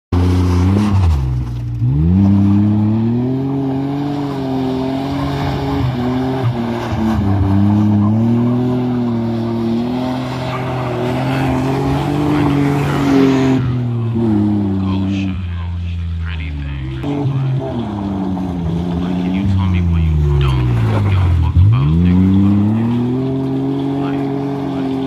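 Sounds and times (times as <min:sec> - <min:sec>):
engine revving hard: 0:00.2 - 0:15.7, 0:16.3 - 0:25.0
tyres scrabbling on dirt: 0:17.3 - 0:25.0.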